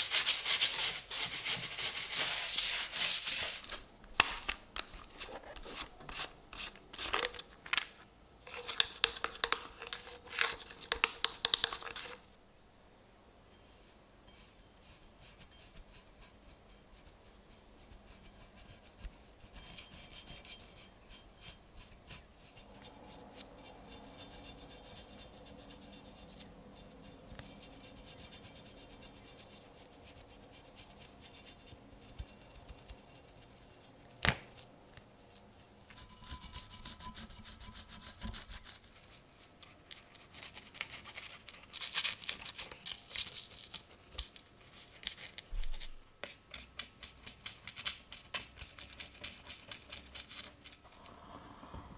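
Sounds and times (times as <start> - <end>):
bristle brush stroking metal: 0.0 - 3.8, 13.5 - 39.4.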